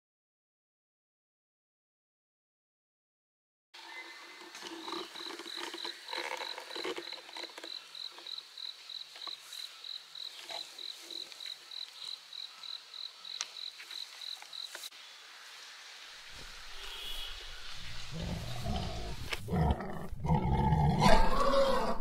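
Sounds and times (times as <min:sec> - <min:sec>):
insect chirping: 0:03.8 - 0:19.6.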